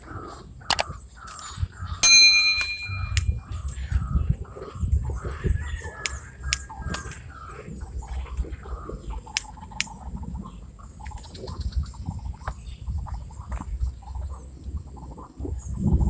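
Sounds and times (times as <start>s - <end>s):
birds chirping: 0.0s - 16.0s
steady low rumble: 0.0s - 16.0s
sharp clicks: 0.6s - 1.4s, 2.6s - 3.8s, 6.0s - 7.3s, 9.3s - 10.0s
thin high-pitched tone: 2.0s - 3.4s.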